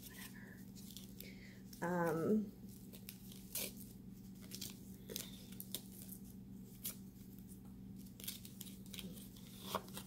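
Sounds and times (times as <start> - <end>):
steady low hum: 0.0 - 10.0
packaging crinkling and tearing: 8.0 - 10.0.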